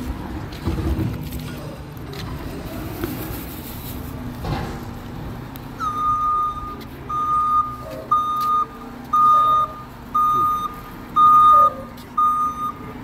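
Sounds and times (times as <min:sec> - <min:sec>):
garbage truck engine rumble: 0:00.0 - 0:13.0
backup alarm beep: 0:05.8 - 0:13.0.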